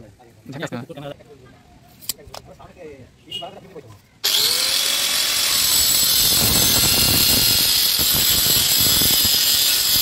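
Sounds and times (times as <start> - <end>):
angle grinder whine: 4.2 - 10.0
grinder disc cutting plastic pipe: 4.2 - 10.0.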